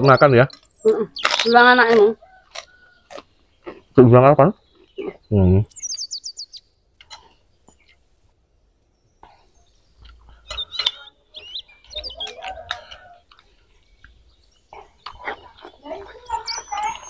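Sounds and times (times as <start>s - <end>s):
birds chirping: 0.0s - 17.0s
chicken clucking: 10.0s - 17.0s.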